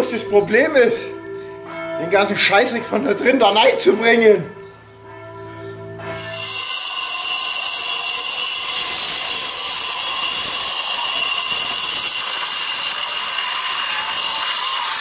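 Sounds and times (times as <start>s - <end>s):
angle grinder cutting brick: 6.1s - 15.0s.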